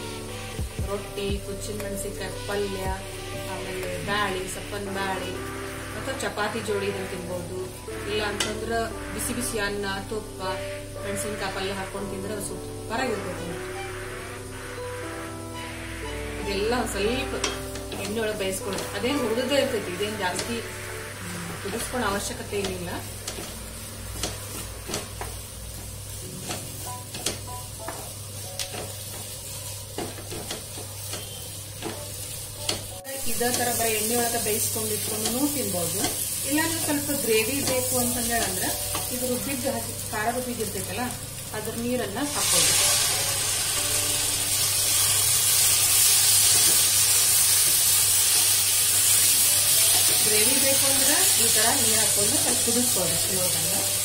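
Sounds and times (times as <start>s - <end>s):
food sizzling in oil: 0.0s - 54.0s
spatula scraping a metal pan: 13.2s - 16.6s.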